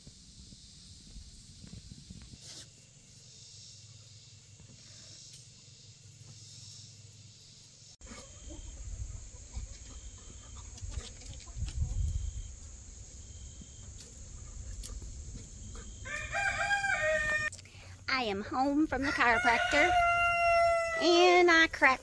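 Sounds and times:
wind rumble on microphone: 0.0 - 2.4, 8.5 - 17.5
high insect drone: 0.0 - 10.6, 12.0 - 22.0.

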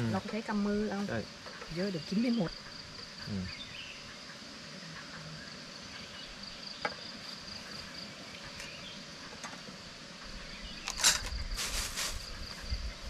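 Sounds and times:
insects droning: 0.0 - 13.0
short vocal sound: 3.3 - 3.5.

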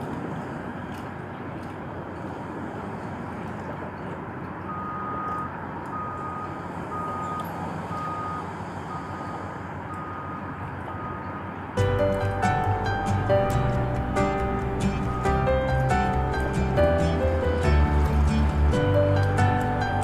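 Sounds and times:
noisy background: 0.0 - 20.0
reversing alarm beeping: 4.7 - 11.6, 14.2 - 17.2.

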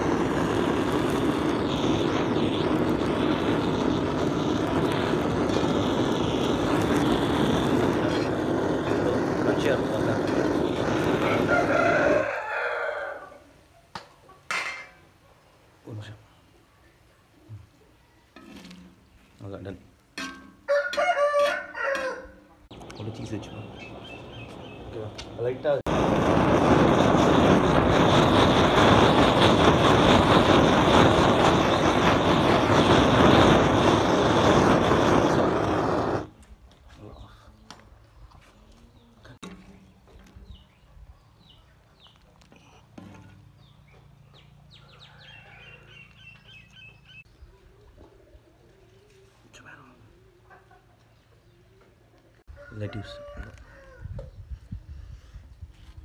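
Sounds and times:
blowtorch flame rushing: 0.0 - 12.5, 22.7 - 36.3.

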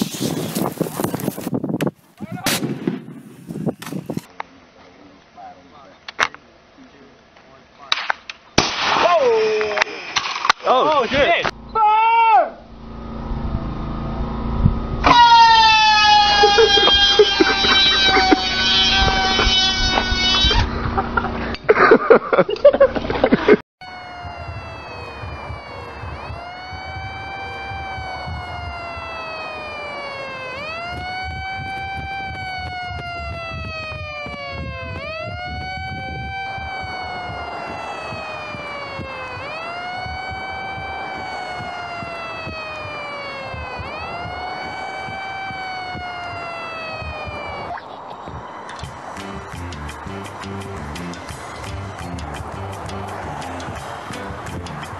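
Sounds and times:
siren wailing: 11.5 - 21.3, 23.8 - 54.9.

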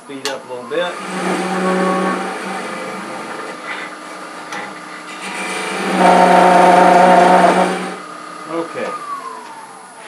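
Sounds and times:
lathe motor hum: 0.7 - 10.0
turning tool cutting wood: 0.8 - 8.1.

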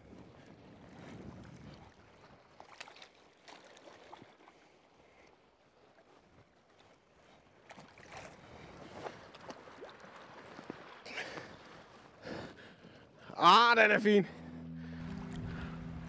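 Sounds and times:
short water splashes: 0.8 - 12.2.

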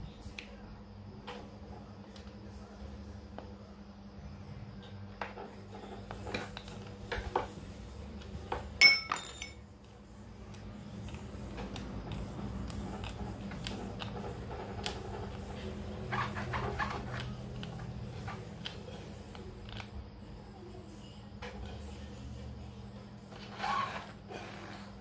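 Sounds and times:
ringing metallic clink: 8.8 - 9.6.

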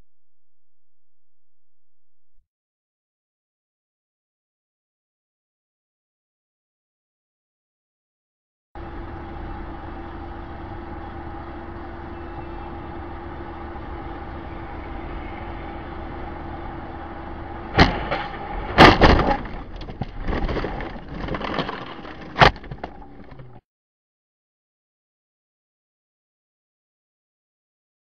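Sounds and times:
car engine and road hum: 8.8 - 23.6
sharp bang: 17.7 - 19.6
car collision crash: 17.7 - 23.0
windshield cracking and clattering: 17.8 - 23.6.

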